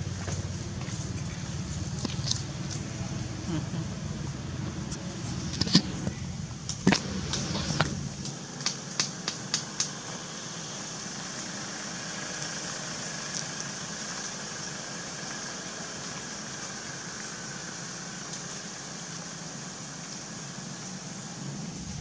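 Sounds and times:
low rumble: 0:00.0 - 0:08.4, 0:21.5 - 0:22.0
outdoor background hiss: 0:00.0 - 0:22.0.

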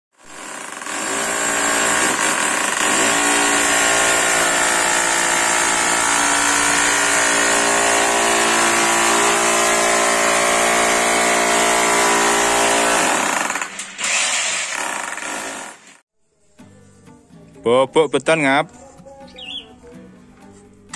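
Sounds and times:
hammer drill boring into wall: 0:00.2 - 0:16.0.

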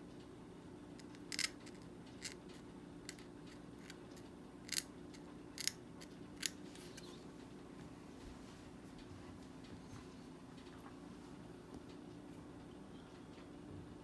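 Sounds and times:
faint steady hum: 0:00.0 - 0:14.0
metal blade scraping plastic tooth: 0:01.0 - 0:02.4, 0:04.7 - 0:04.9, 0:05.6 - 0:05.8.

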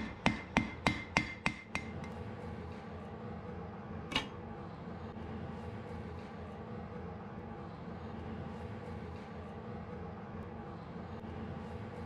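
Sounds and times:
hammer ringing on anvil: 0:00.0 - 0:02.2.

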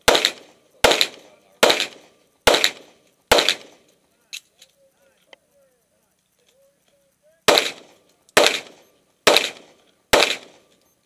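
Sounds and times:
pistol shots with echo: 0:00.0 - 0:03.9, 0:07.5 - 0:10.7.

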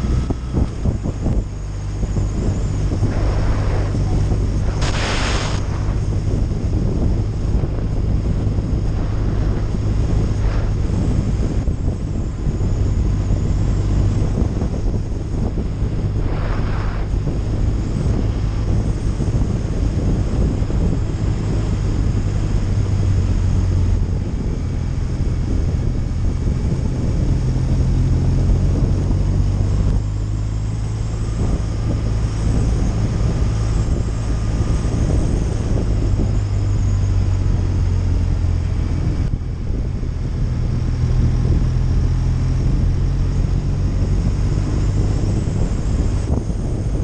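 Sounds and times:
motorcycle engine running: 0:00.0 - 0:47.0
wind noise on microphone: 0:00.0 - 0:47.0.

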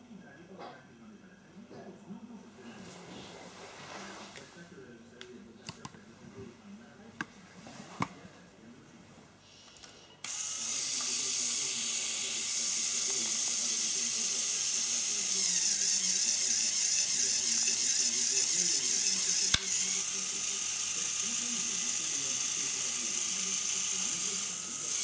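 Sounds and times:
electric motor whining: 0:09.8 - 0:25.0.

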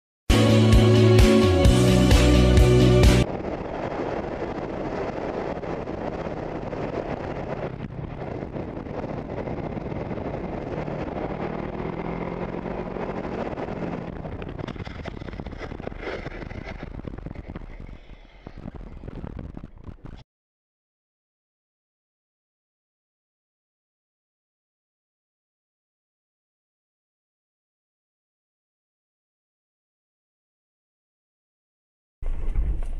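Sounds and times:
wind rushing over microphone: 0:02.1 - 0:20.2
motorcycle engine running: 0:03.3 - 0:18.1.

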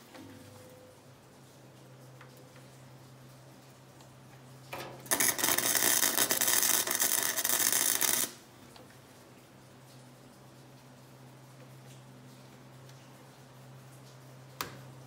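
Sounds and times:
low steady hum: 0:00.0 - 0:15.0
welding arc crackling: 0:05.0 - 0:08.8.

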